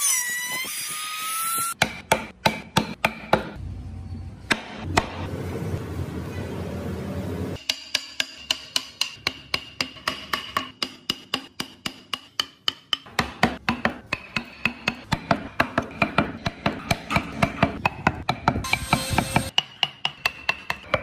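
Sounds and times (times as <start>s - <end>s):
mallet tapping chisel into wood: 7.7s - 19.0s.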